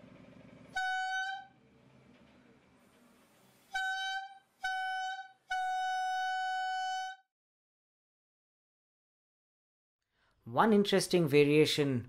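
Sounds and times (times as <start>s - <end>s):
buzzy homemade bugle note: 0.7s - 1.6s, 3.6s - 7.3s.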